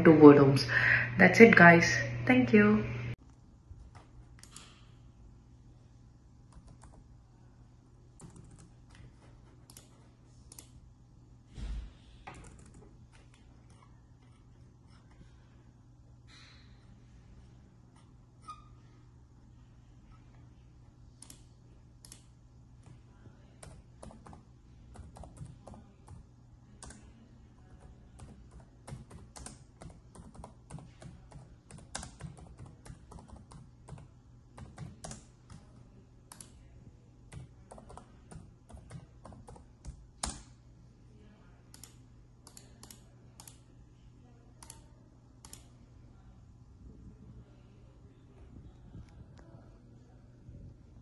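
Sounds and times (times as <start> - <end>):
faint low hum: 0.0 - 51.0
computer keyboard typing: 6.5 - 7.0, 8.2 - 10.7, 12.3 - 14.4, 23.6 - 36.6, 37.3 - 40.5.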